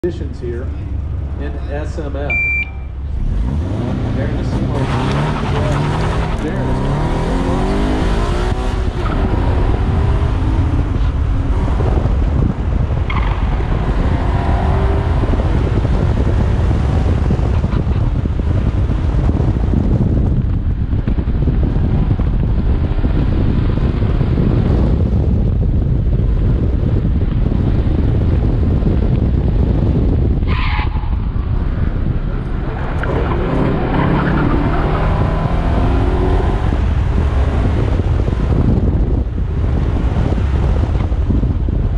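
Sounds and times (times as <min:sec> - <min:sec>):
wind and tyre noise: 0:00.0 - 0:41.9
car engine revving: 0:00.6 - 0:20.3, 0:29.8 - 0:41.2
tyre squeal: 0:30.4 - 0:31.2.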